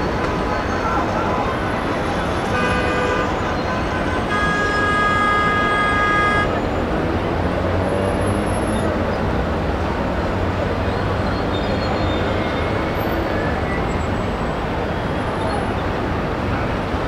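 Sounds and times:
heavy road traffic: 0.0s - 17.0s
car horns honking: 1.4s - 6.6s.

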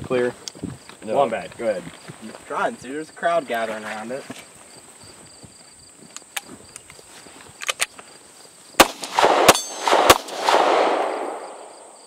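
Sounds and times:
pistol shots with ringing echo: 8.8s - 11.9s.

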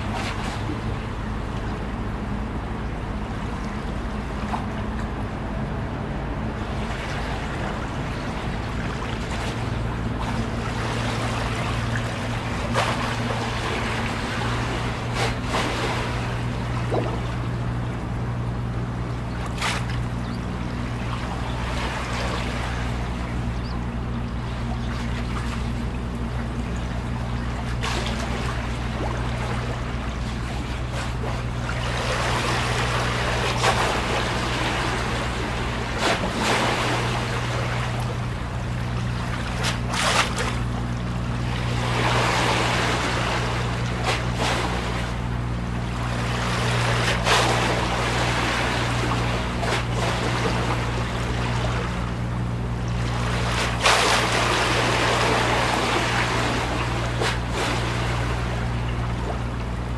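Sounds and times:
steady low hum: 0.0s - 59.9s
waves lapping against a wall: 0.0s - 59.9s
sharp water splash: 19.4s - 20.1s, 30.8s - 38.3s, 39.1s - 40.8s, 46.2s - 52.0s, 52.9s - 58.7s.

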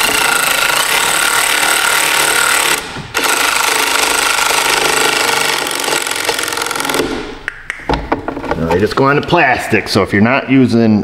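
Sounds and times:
electric ratchet motor buzzing: 0.0s - 7.3s.

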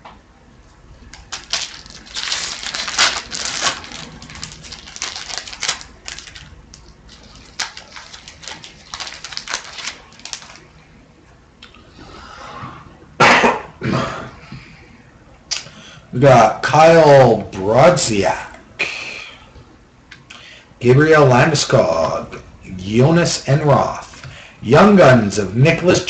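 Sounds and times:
cards rustling: 1.1s - 10.7s
wrapper crinkling and tearing: 1.1s - 10.7s.

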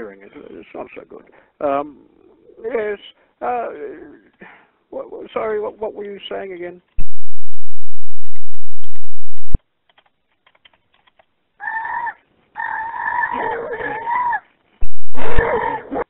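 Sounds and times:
faint clicks: 8.2s - 11.3s
fowl calling over telephone: 11.6s - 13.3s.

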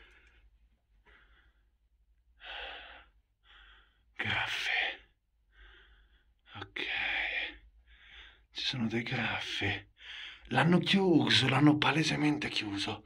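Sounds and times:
man breathing heavily: 2.4s - 4.1s, 5.5s - 6.4s, 7.8s - 8.5s, 9.9s - 10.5s.

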